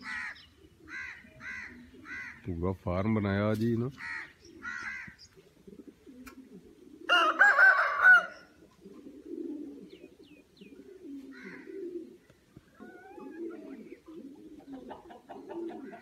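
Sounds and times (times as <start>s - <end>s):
pigeons cooing: 0.0s - 2.7s, 3.9s - 16.0s
rooster crowing: 7.1s - 8.5s.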